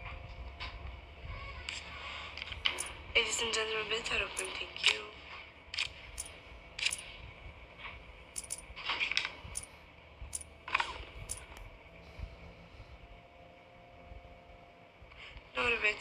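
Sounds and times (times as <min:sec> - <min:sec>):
casino chips clicking: 0:08.4 - 0:08.6.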